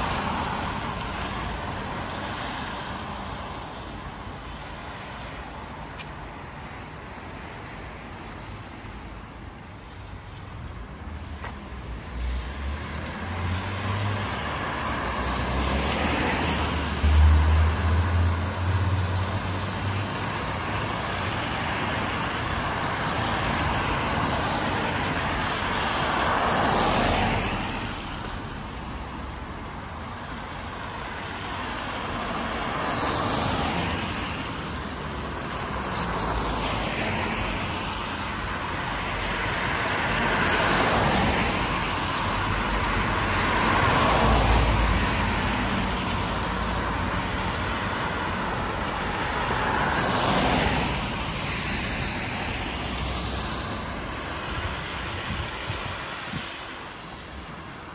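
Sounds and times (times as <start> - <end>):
car tyres hissing on wet road: 39.0 - 57.5.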